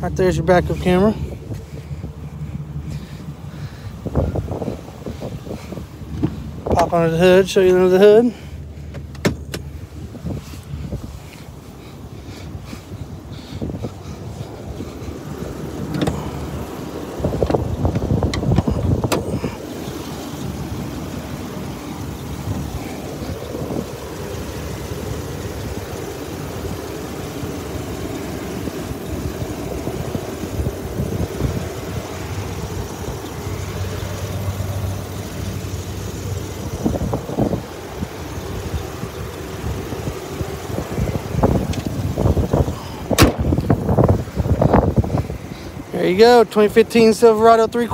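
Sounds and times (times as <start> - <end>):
wind buffeting microphone: 1.1 - 7.1, 9.4 - 46.4
hood knocks and clunks: 5.7 - 7.0, 8.8 - 9.8, 15.7 - 16.5, 17.3 - 19.5, 41.5 - 44.8.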